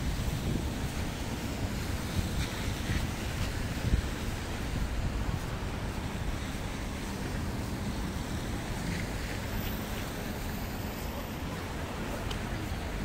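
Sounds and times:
distant city traffic hum: 0.0s - 13.0s
wind rumbling on microphone: 0.0s - 13.0s.

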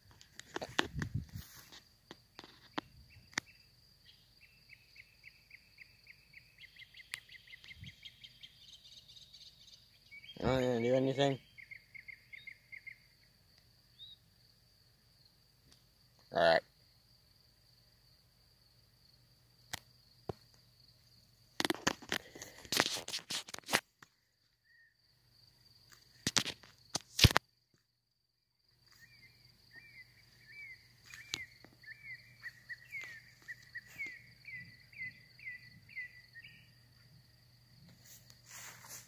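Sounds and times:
high insect trill: 0.0s - 39.0s
rustling grass and handling: 0.3s - 2.7s, 37.9s - 39.0s.

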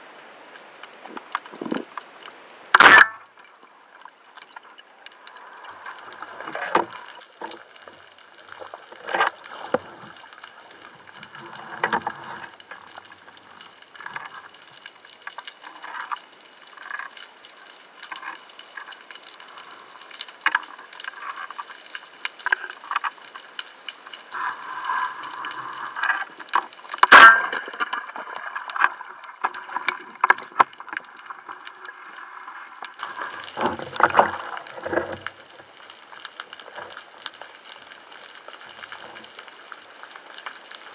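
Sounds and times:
water sloshing and bubbling: 0.0s - 40.9s
muffled underwater hiss: 3.4s - 40.9s.

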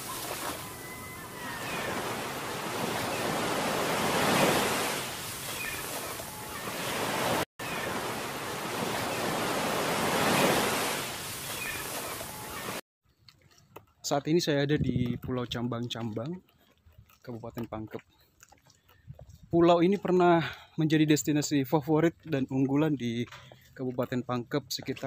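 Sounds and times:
water rushing past boat: 0.0s - 12.8s.

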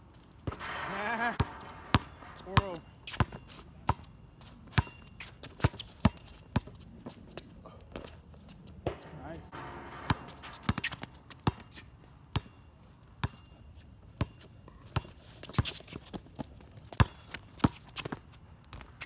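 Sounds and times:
basketball bouncing on hard court: 0.4s - 4.1s, 4.7s - 6.7s, 8.8s - 12.5s.

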